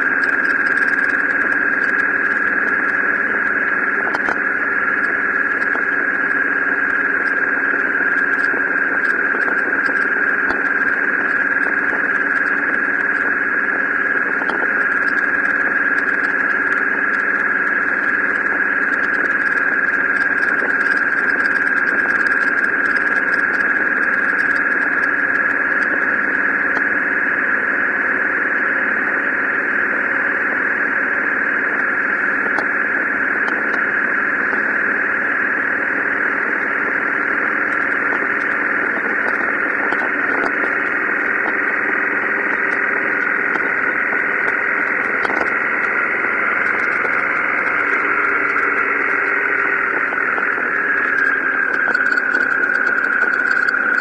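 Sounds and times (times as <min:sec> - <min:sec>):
wind noise: 0:32.2 - 0:54.0.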